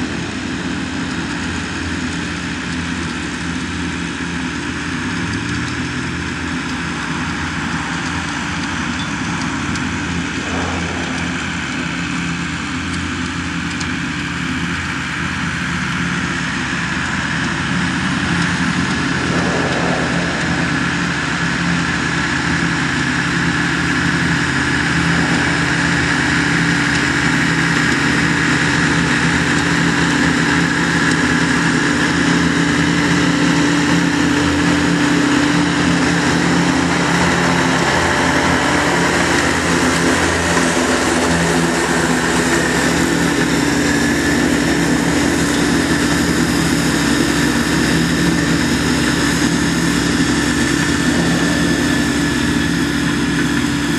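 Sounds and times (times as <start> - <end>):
mower engine running: 17.1 - 53.9.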